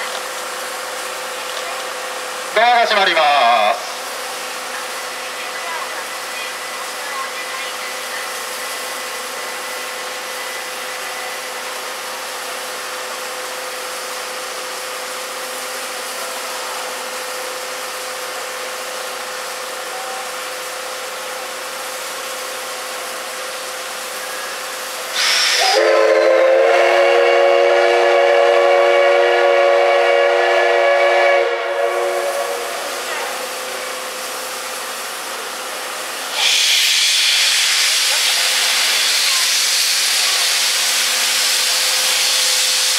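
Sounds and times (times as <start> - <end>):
steady steam hiss: 0.0 - 42.9
loud burst of steam hiss: 2.1 - 42.9
steam whistle long blast: 25.2 - 33.0.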